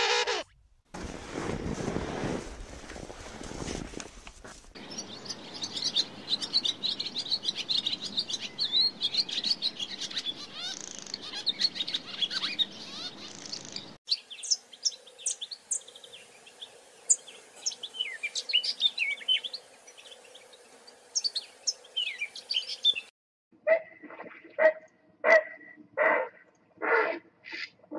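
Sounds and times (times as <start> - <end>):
songbirds chirping and twittering: 4.8 - 23.1.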